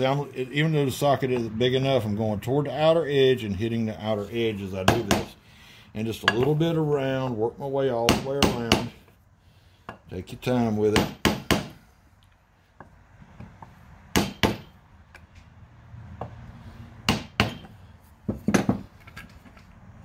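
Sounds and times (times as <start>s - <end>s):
hammer striking metal driver: 14.1s - 14.8s, 17.1s - 17.8s.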